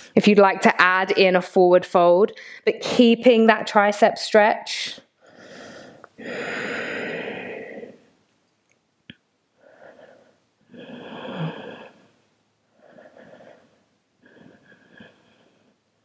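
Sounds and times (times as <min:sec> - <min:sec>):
woman breathing deeply: 0:05.2 - 0:08.1, 0:09.6 - 0:15.8.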